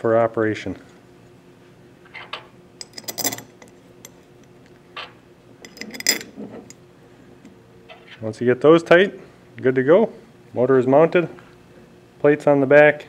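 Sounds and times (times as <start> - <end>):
machine screws clinking on metal: 2.8 - 4.2, 5.6 - 6.4.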